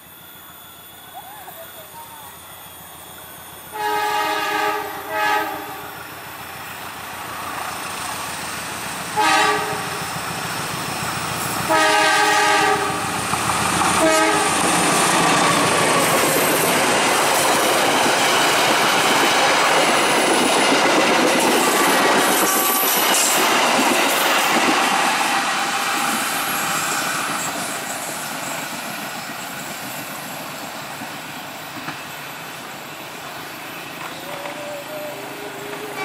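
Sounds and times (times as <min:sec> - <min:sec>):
train rolling past: 0:00.0 - 0:36.0
locomotive horn blasts: 0:03.7 - 0:06.0, 0:09.2 - 0:10.0, 0:11.7 - 0:13.1, 0:14.0 - 0:14.6, 0:35.2 - 0:36.0.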